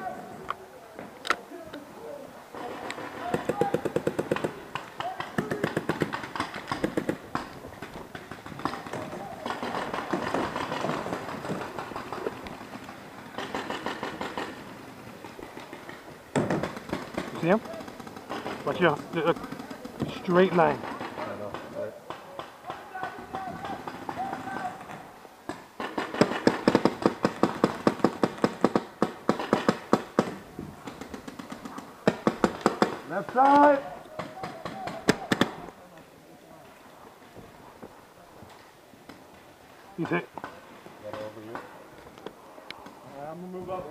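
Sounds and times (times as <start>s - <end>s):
paintball markers firing: 2.8s - 14.6s.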